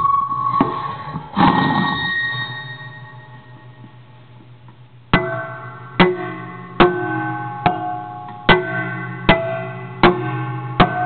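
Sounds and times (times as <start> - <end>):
metallic ringing chord: 5.1 - 11.0.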